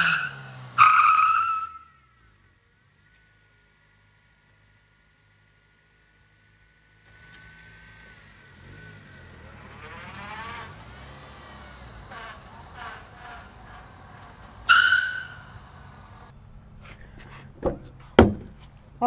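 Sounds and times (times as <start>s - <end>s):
tire squeal: 0.0s - 3.4s, 7.1s - 18.8s
car engine revving: 0.0s - 4.2s, 7.0s - 19.0s.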